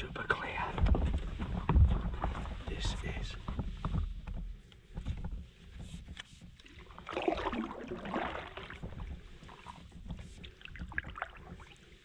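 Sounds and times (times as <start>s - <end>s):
paddle splashing water: 5.8s - 12.0s.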